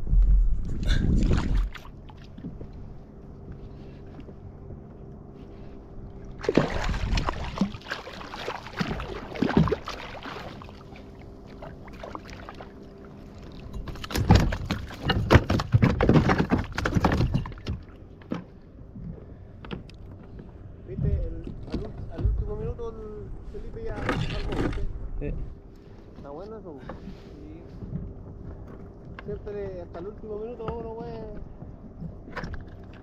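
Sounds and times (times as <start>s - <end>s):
faint steady hum: 0.0s - 33.0s
water splashing around kayak: 0.0s - 33.0s.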